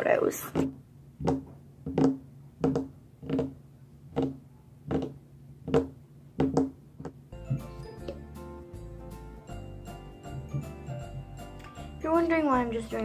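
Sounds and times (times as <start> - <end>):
music: 7.3 - 13.0.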